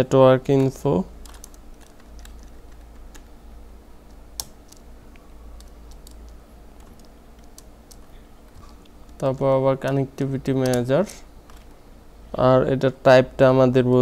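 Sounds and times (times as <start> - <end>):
keyboard keystroke clicks: 4.1 - 4.8, 5.6 - 9.2.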